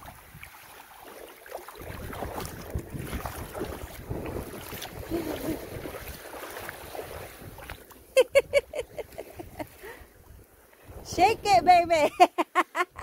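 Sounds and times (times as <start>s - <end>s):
beach surf: 0.0s - 13.0s
wind noise on microphone: 1.7s - 12.2s.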